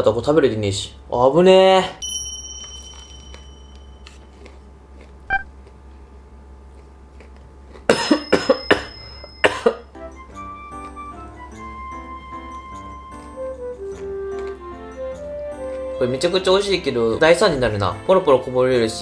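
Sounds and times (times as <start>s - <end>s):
man coughing: 7.9s - 9.9s.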